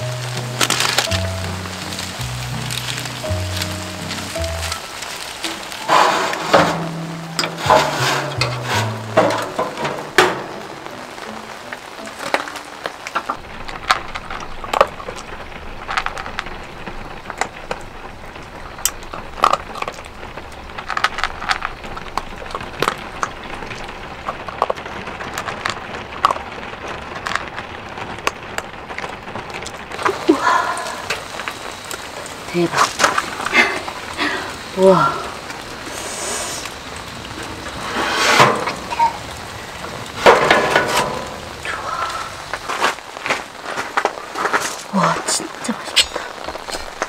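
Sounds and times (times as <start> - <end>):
background music: 0.0 - 13.4
rain pattering: 0.0 - 47.0.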